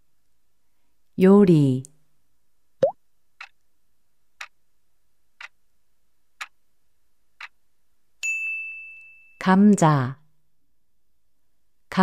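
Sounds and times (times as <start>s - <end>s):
bell-like ding: 8.2s - 9.4s.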